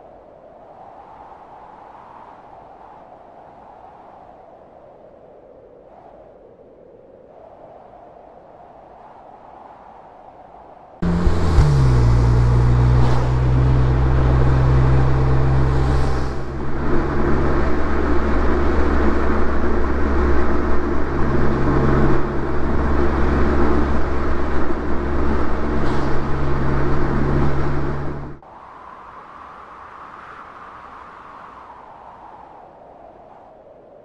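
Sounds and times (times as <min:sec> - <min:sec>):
road and wind noise: 0:08.6 - 0:34.0
car engine running: 0:11.0 - 0:28.4.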